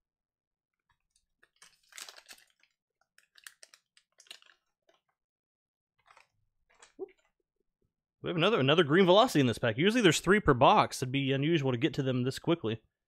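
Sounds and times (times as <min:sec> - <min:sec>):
wrapper rustle: 0:01.0 - 0:05.2, 0:06.0 - 0:07.0
foil wrapper crinkling and tearing: 0:01.1 - 0:05.1, 0:06.0 - 0:07.0.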